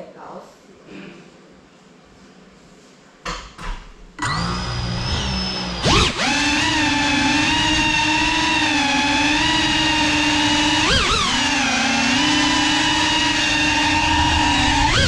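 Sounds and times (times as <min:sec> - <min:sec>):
drone motors whining: 0:04.2 - 0:15.0.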